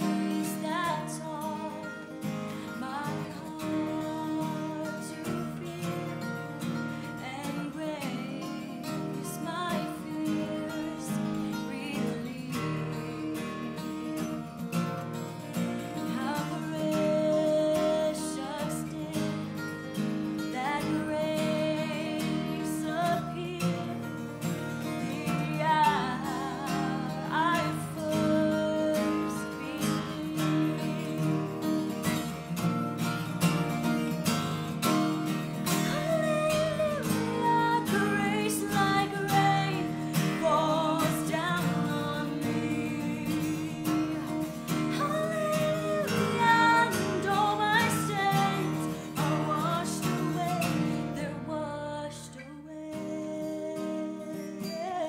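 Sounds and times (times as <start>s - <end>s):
strummed acoustic guitar: 0.0s - 55.0s
person singing worship song: 24.9s - 31.7s, 35.8s - 55.0s.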